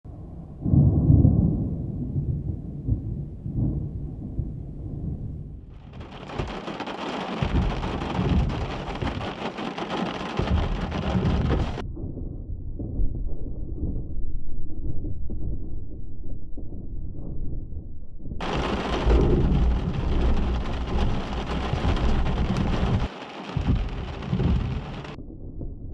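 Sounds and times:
thunder rumbling: 0.1 - 25.9
heavy rain: 5.7 - 11.8, 18.4 - 25.2.

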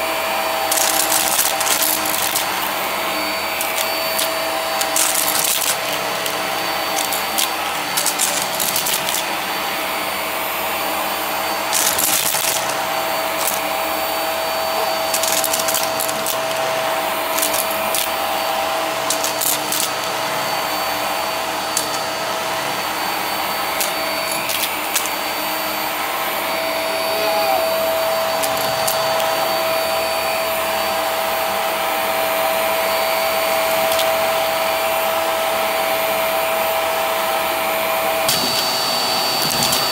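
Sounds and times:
vacuum cleaner motor whine: 0.0 - 39.9
confetti rattling through vacuum: 0.6 - 2.8, 3.5 - 9.4, 11.7 - 13.8, 15.0 - 16.6, 19.0 - 20.0.

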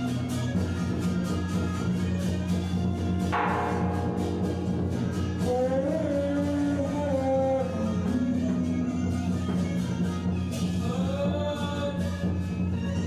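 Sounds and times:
plucked string instrument: 1.5 - 13.0
low accompaniment: 2.6 - 13.0
person singing: 5.4 - 9.6.

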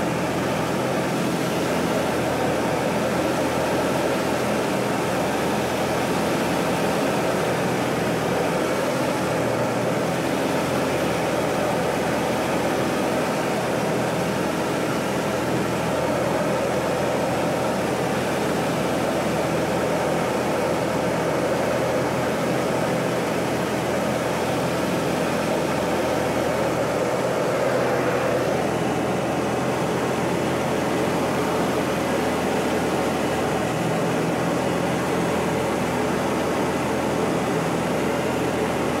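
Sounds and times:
propeller plane engine droning: 0.0 - 39.0
rushing wind: 22.8 - 39.0.

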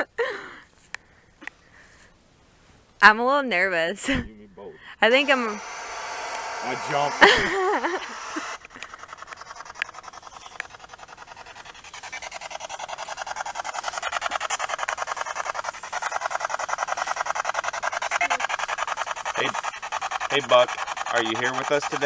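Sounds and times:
radio static chopping: 5.0 - 22.0
sharp clicks: 5.1 - 22.0.

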